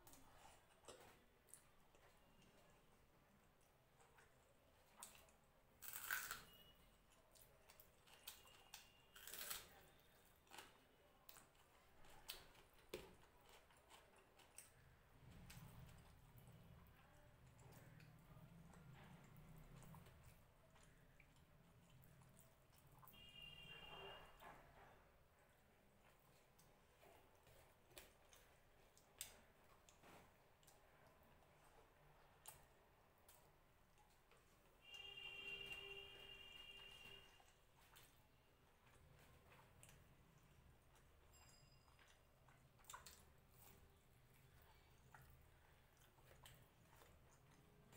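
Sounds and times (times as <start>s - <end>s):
chewing: 0.0s - 35.1s, 36.3s - 47.9s
mouth clicks while chewing: 42.0s - 43.8s.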